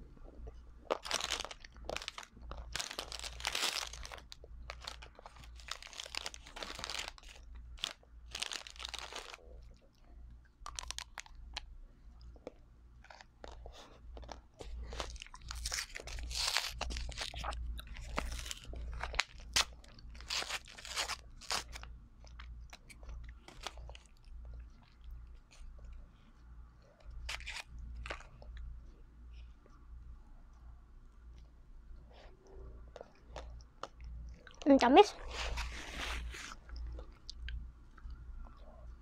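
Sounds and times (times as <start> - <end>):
crunching and chewing ice cream: 0.2 - 29.8, 32.8 - 34.6, 35.2 - 39.0
plastic wrappers crinkling: 0.8 - 9.5, 10.6 - 11.6, 13.0 - 24.1, 27.3 - 28.2.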